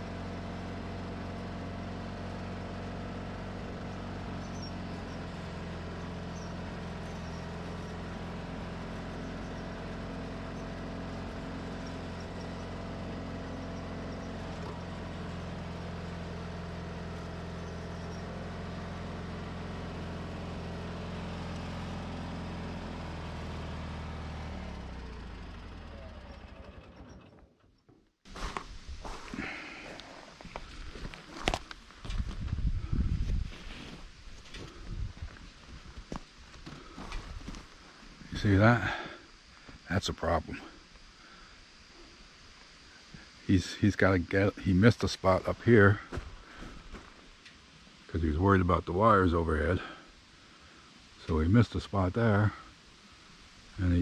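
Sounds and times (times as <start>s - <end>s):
garden tractor engine running: 0.0s - 54.0s
tyres on gravel: 28.2s - 40.7s, 43.1s - 50.0s.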